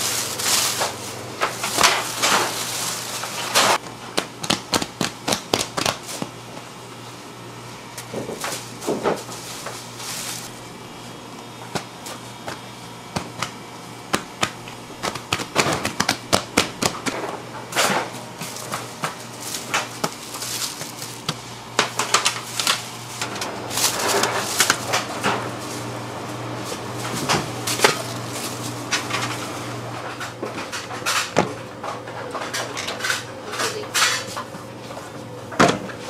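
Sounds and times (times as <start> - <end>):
plastic rustling: 0.0 - 3.8, 8.0 - 11.2, 14.3 - 29.6
low machine hum: 0.0 - 36.0.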